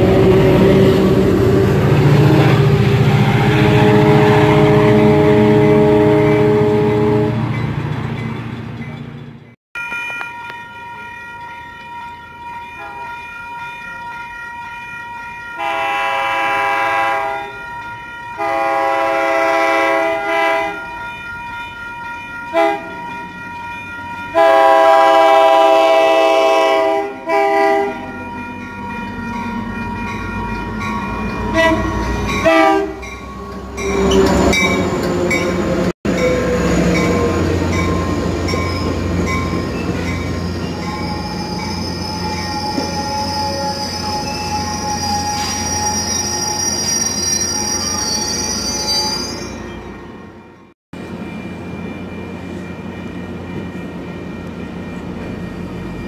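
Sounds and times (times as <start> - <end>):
train horn blasts: 0.0 - 7.5, 15.6 - 17.6, 18.4 - 20.8, 22.5 - 23.0, 24.3 - 28.1, 31.5 - 34.2
train rumble: 0.0 - 13.3, 21.3 - 48.5
train squeal: 28.0 - 50.6.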